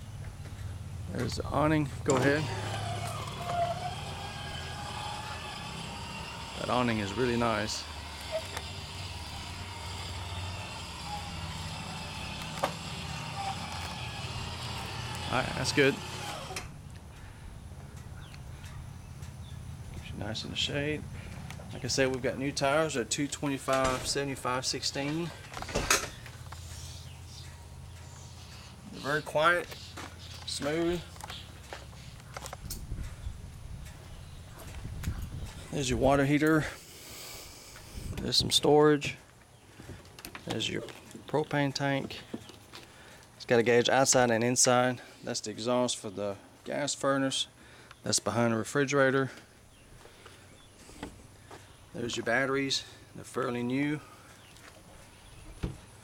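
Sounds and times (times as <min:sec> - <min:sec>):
awning motor humming: 0:01.2 - 0:33.2
footsteps on concrete: 0:29.6 - 0:33.2, 0:49.4 - 0:52.3, 0:54.2 - 0:55.9.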